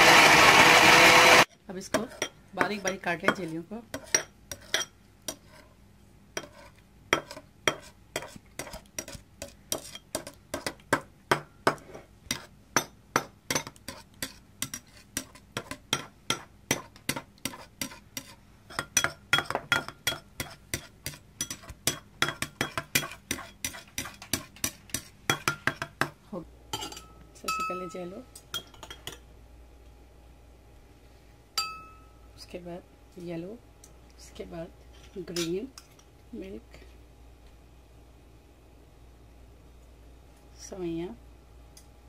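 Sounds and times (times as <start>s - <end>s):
utensil tapping ceramic bowl: 14.6s - 26.2s.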